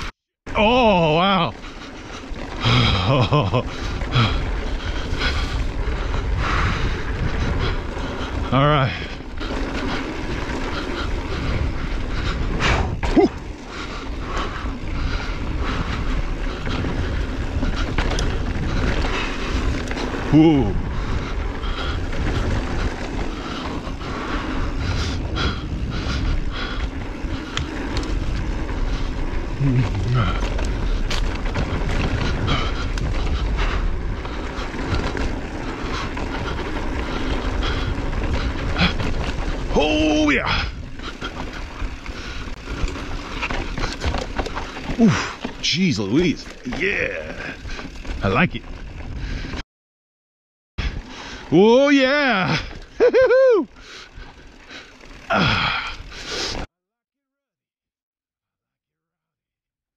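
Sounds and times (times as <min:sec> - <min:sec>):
bike rattling over bumps: 0:00.5 - 0:49.6, 0:50.8 - 0:56.7
bike tyres on dirt: 0:00.5 - 0:49.6, 0:50.8 - 0:56.7
wind rumble on microphone: 0:02.6 - 0:45.4, 0:47.4 - 0:49.6.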